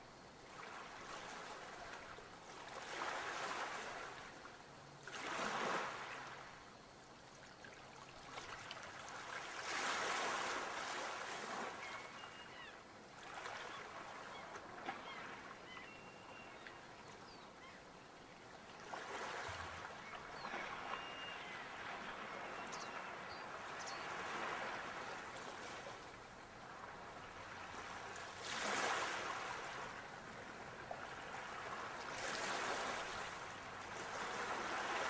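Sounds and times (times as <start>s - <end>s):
ocean waves breaking on shore: 0.0s - 6.9s, 7.8s - 35.0s
faint short bird calls: 11.6s - 12.8s, 13.6s - 17.9s, 19.3s - 24.3s.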